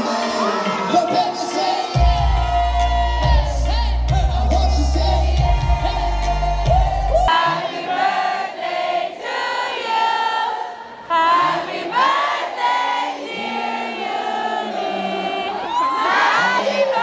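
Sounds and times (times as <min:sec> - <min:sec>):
band music with heavy bass: 0:00.0 - 0:07.3
crowd singing in unison: 0:00.0 - 0:17.0.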